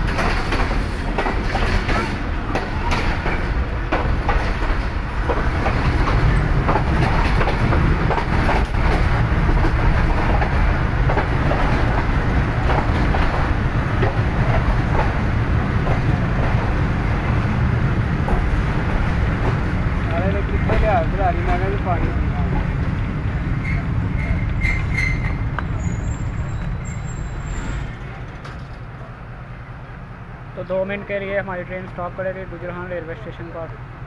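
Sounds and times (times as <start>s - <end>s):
wheels clicking over rail joints: 0.0s - 16.8s
train coach rumble: 0.0s - 34.0s.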